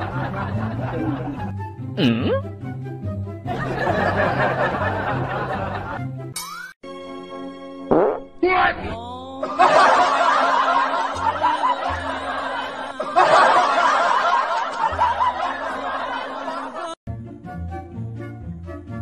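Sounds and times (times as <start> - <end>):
background music: 0.0 - 19.0
canned laughter: 3.5 - 6.0, 9.4 - 17.0.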